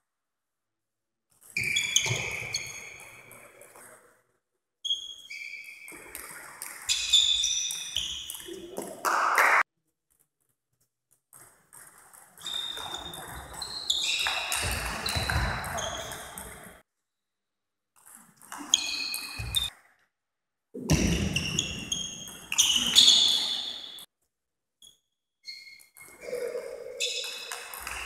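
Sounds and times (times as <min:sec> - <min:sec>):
shoes squeaking on floor: 0:01.4 - 0:03.5, 0:04.8 - 0:06.1, 0:06.9 - 0:08.8, 0:12.4 - 0:16.7, 0:18.6 - 0:19.7, 0:21.0 - 0:24.1, 0:24.8 - 0:28.0.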